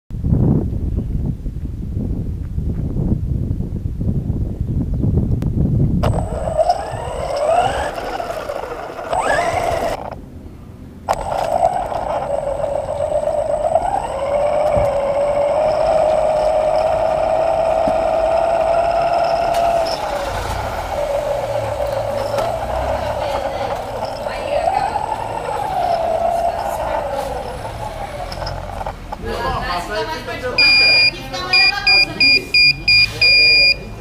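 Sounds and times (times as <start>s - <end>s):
model truck motor running: 6.0s - 10.2s, 11.1s - 34.0s.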